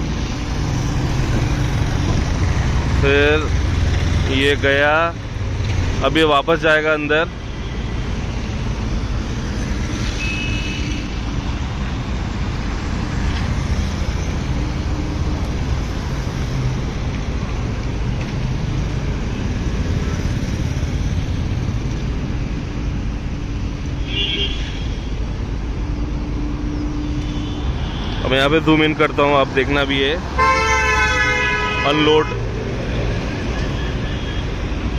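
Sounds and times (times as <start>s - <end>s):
road traffic rumble: 0.0s - 34.9s
vehicle horn toots: 24.0s - 24.9s, 30.4s - 32.4s.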